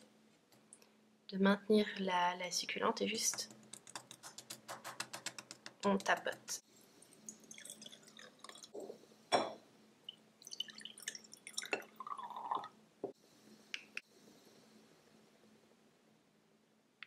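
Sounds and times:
water pouring into glass jars: 0:06.8 - 0:08.9, 0:10.4 - 0:12.8.

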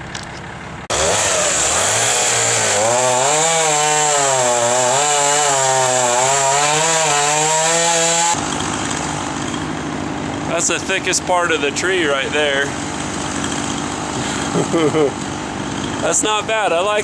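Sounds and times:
chainsaw cutting through log: 0:00.9 - 0:11.2, 0:11.8 - 0:16.4.

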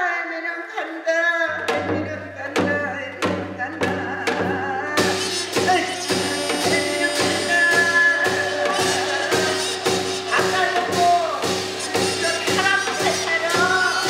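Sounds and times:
ritual music melody: 0:01.6 - 0:14.0
percussion strokes: 0:05.0 - 0:14.0
bright high musical layer: 0:05.1 - 0:14.0.

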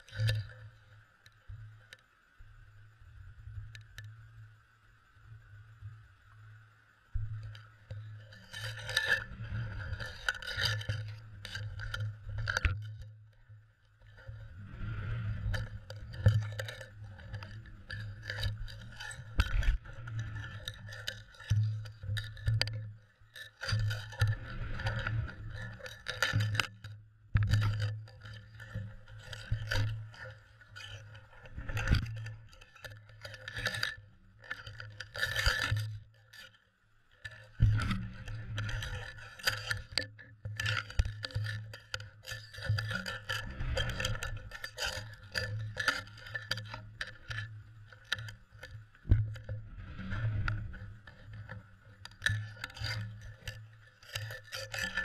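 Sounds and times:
muffled underwater knocking and scraping: 0:00.0 - 0:00.8, 0:07.2 - 0:55.0
steady low hum: 0:02.4 - 0:23.2.

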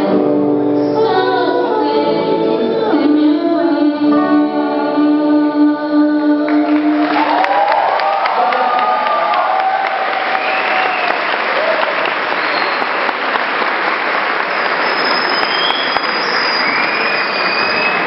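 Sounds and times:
audience clapping: 0:06.5 - 0:18.0
cheers and whistles: 0:07.1 - 0:13.4, 0:14.3 - 0:18.0.

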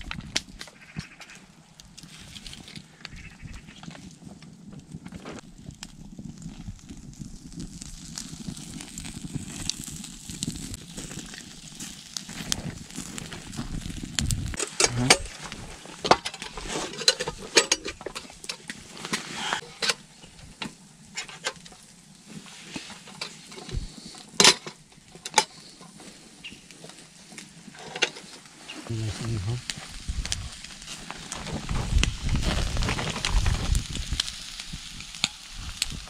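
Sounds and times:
meat sizzling on a grill: 0:01.9 - 0:02.8, 0:05.4 - 0:24.4, 0:28.5 - 0:36.0
metal lantern clicks and knocks: 0:24.4 - 0:25.5.

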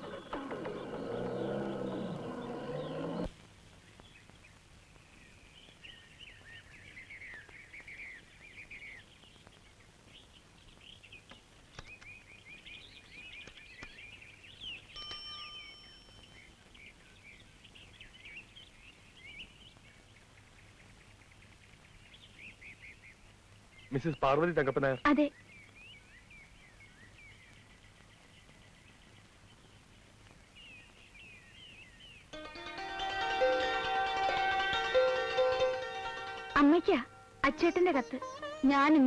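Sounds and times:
birds chirping: 0:00.0 - 0:39.0
bicycle bell ringing: 0:15.0 - 0:16.1.

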